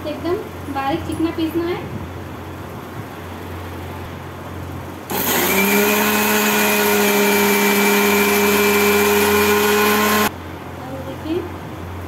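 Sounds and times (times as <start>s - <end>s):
mixer grinder motor whine: 5.1s - 10.3s.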